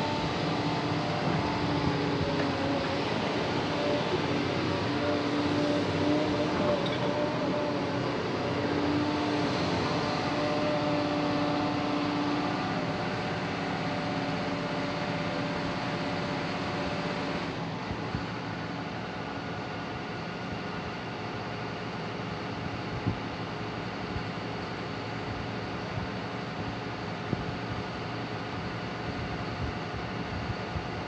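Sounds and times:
hydraulic whine: 0:00.0 - 0:19.8
excavator diesel engine running: 0:00.0 - 0:31.0.

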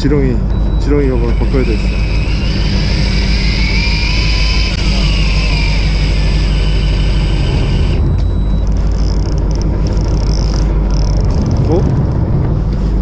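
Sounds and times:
boat engine rumbling: 0:00.0 - 0:13.0
thin whine: 0:00.0 - 0:13.0
wind: 0:07.4 - 0:13.0.

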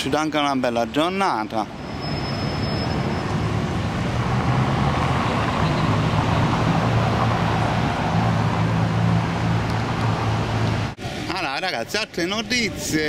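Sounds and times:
city traffic hum: 0:00.0 - 0:13.0
car driving past: 0:01.8 - 0:11.0.

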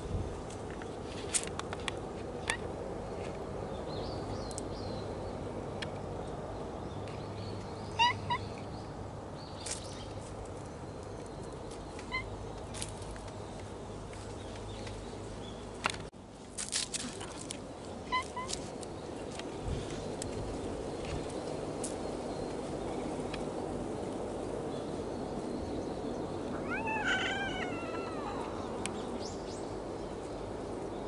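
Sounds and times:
outdoor background hum: 0:00.0 - 0:31.0
cat meows: 0:26.6 - 0:28.6.

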